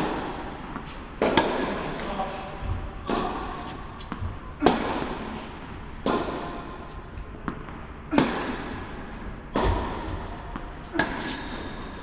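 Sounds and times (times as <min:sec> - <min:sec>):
tennis racket hitting ball: 0:00.0 - 0:02.2, 0:03.0 - 0:06.8, 0:07.4 - 0:12.0.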